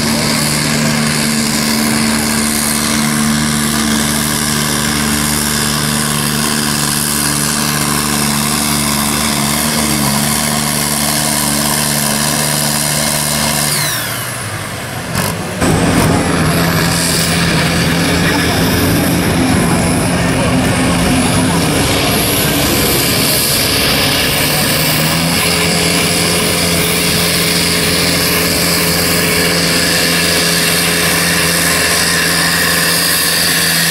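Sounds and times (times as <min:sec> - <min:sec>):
another tractor engine running: 0:00.0 - 0:33.9
diesel tractor engine at high revs: 0:00.0 - 0:33.9
sharp break: 0:00.0 - 0:33.9
high whine falling in pitch: 0:15.6 - 0:30.3.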